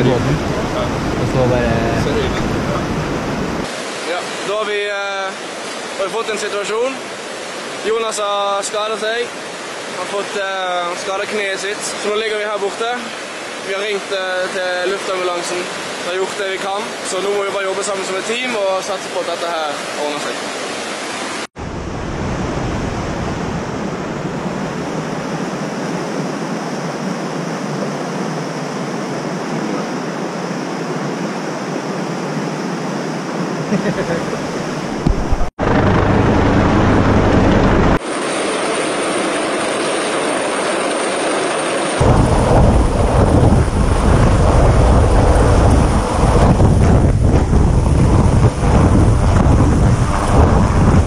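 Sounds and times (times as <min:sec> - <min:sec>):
wind buffeting microphone: 0:00.0 - 0:03.7, 0:21.6 - 0:38.0, 0:42.0 - 0:51.0
steady rushing noise: 0:00.0 - 0:51.0
helicopter rotor hovering: 0:34.0 - 0:50.9.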